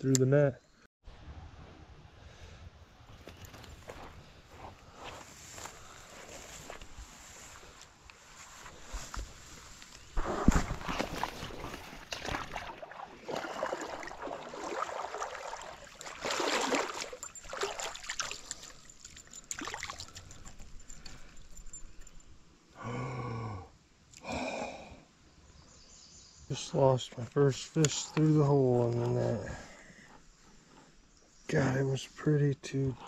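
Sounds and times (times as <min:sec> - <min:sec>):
water splashing around legs: 0:10.2 - 0:20.6.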